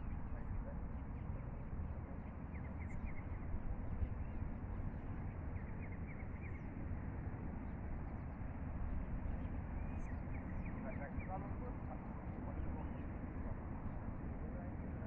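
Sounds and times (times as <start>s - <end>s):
birds chirping: 0.0s - 6.7s, 9.2s - 13.3s.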